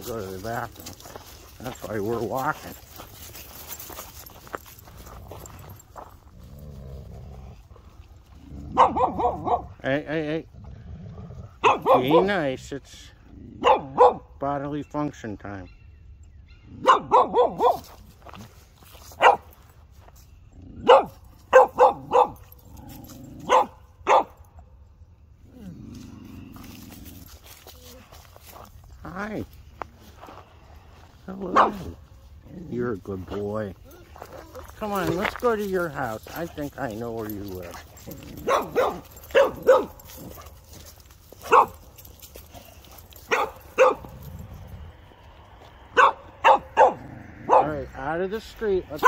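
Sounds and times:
dog barking: 8.7s - 9.8s, 11.6s - 12.3s, 13.6s - 14.3s, 16.5s - 18.0s, 19.2s - 19.6s, 20.8s - 22.6s, 23.4s - 24.4s, 31.5s - 32.0s, 38.0s - 40.6s, 41.4s - 41.9s, 43.3s - 44.2s, 45.9s - 47.9s.

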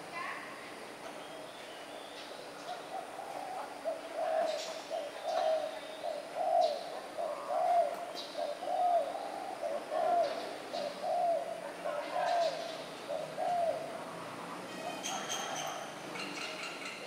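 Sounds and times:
dove cooing: 2.7s - 14.1s.

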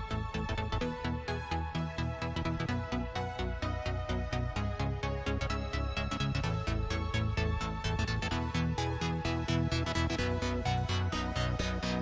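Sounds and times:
electronic music with driving beat: 0.0s - 12.0s.

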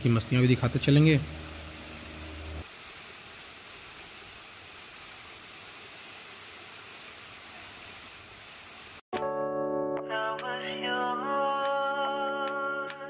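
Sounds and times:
waterfall rushing into a pool: 0.1s - 9.0s.

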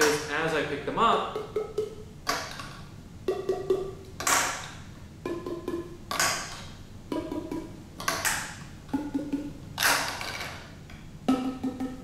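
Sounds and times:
plastic pipes struck on palm: 1.4s - 10.6s.

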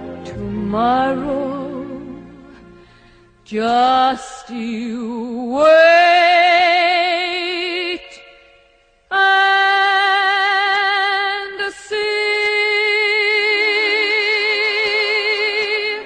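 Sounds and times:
woman singing with vibrato: 0.0s - 2.8s, 3.4s - 8.5s, 9.1s - 16.0s.

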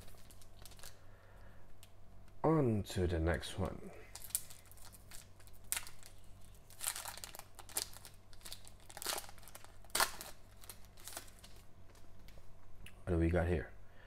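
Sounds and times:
foil wrapper crinkling and tearing: 0.0s - 1.0s, 4.0s - 12.1s.

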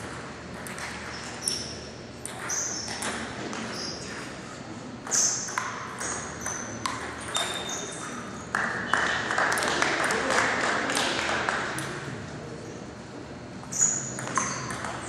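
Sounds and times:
spectators applauding: 8.6s - 11.8s.

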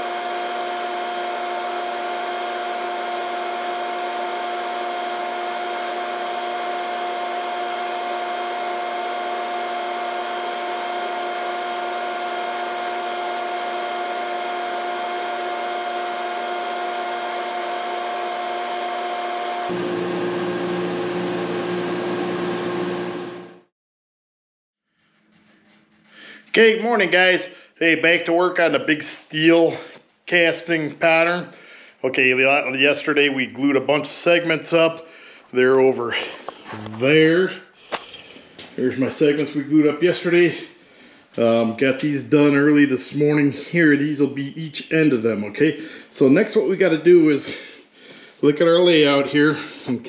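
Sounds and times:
electric motor whirring: 0.0s - 19.8s.

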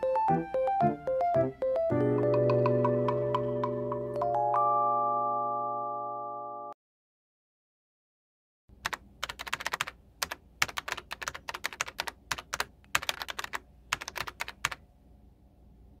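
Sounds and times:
keyboard typing clicks: 8.8s - 14.8s.

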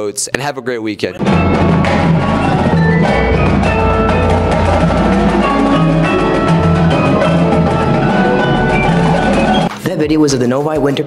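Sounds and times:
low bass notes: 1.2s - 9.7s
marimbas and vibraphones: 1.2s - 9.7s
drum hits: 1.2s - 9.8s.

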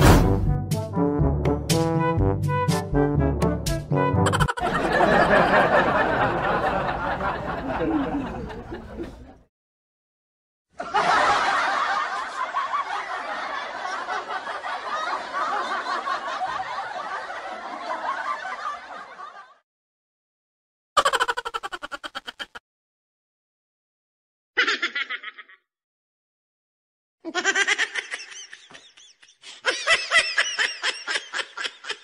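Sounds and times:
laughter: 4.2s - 9.5s, 10.8s - 19.6s, 21.0s - 22.6s, 24.6s - 25.7s, 27.3s - 32.0s.

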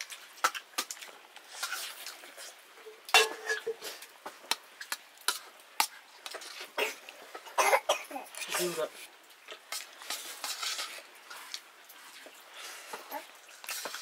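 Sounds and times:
metal spoon scraping steel plate: 10.1s - 11.0s.

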